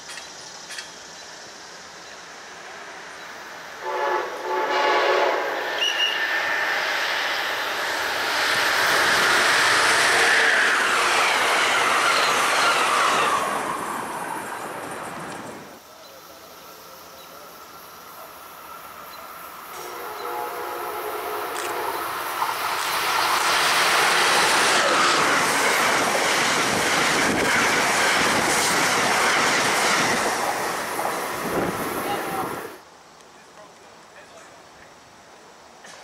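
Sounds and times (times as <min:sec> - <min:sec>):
train wheel and rail noise: 0:00.0 - 0:36.0
train horn: 0:03.8 - 0:06.5, 0:10.1 - 0:10.9, 0:19.7 - 0:22.2, 0:23.9 - 0:25.0.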